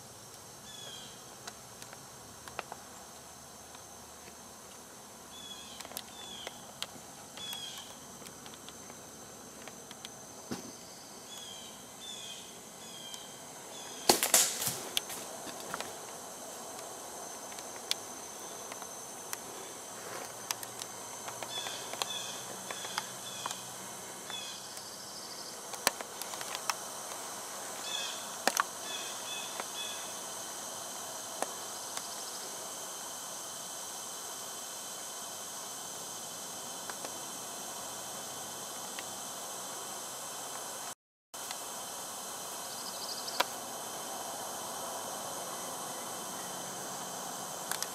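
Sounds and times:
steady hiss: 0.0s - 47.9s
loud crackling rustle: 14.0s - 23.6s.

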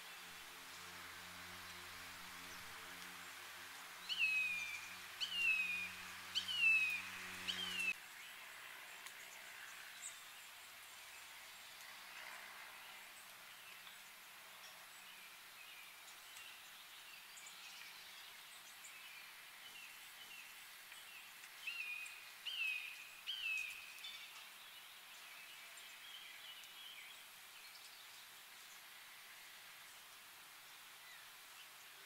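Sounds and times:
bird and insect chorus: 4.0s - 32.0s
bird whistled calls: 4.1s - 7.9s.

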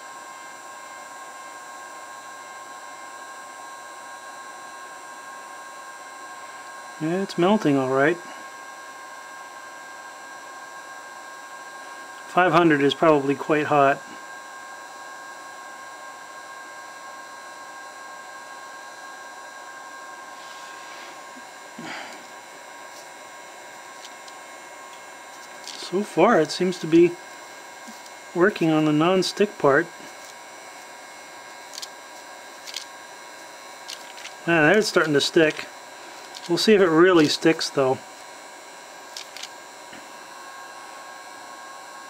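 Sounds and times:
heat gun blowing air: 0.0s - 42.0s
high whine: 18.4s - 41.6s.

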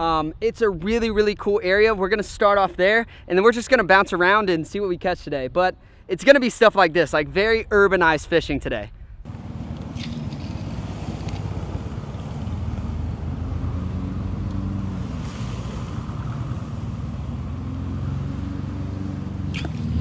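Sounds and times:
lawn mower engine running: 9.3s - 17.6s.

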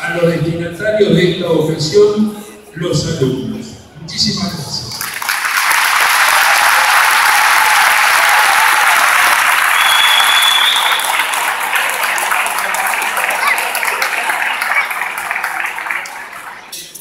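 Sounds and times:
audience applauding: 5.0s - 17.0s.

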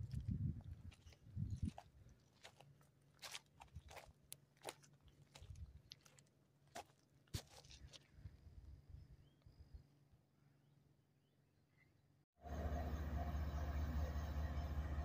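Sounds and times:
faint clicks and crunches: 0.9s - 8.1s.

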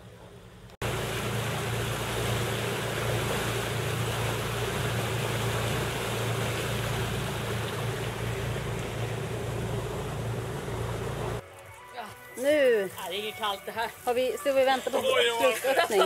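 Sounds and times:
boat engine running: 0.3s - 11.4s
wind and water rushing: 0.8s - 11.4s.

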